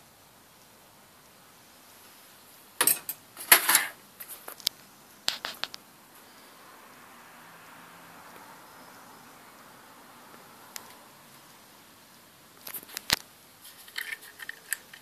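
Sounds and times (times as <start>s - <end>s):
metallic clattering on workbench: 2.8s - 4.0s.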